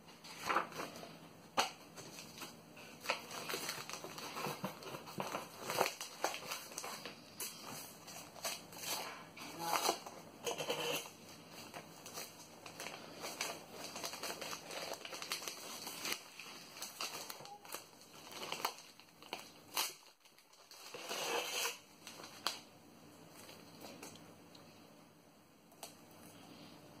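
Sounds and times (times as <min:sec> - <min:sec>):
tissue paper crinkling: 0:02.0 - 0:22.6.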